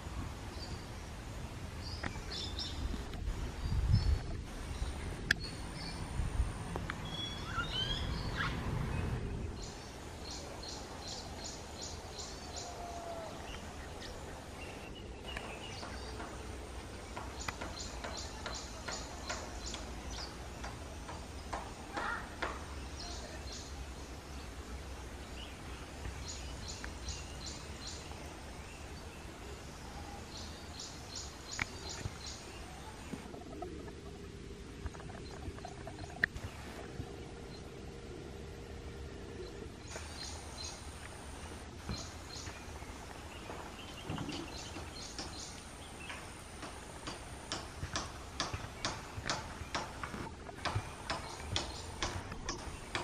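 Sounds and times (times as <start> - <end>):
low outdoor rumble: 0.0 - 53.0
bird chirps: 7.0 - 16.4.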